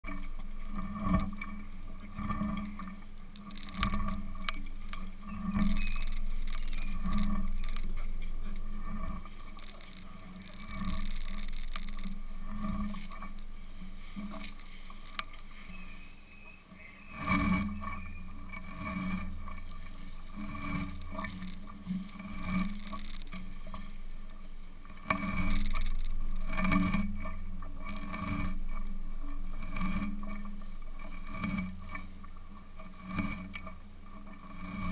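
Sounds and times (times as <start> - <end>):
branches and leaves scraping: 2.2 - 26.9
camera rubbing and knocks: 3.4 - 8.2, 9.0 - 16.0, 20.3 - 23.4, 25.1 - 27.0.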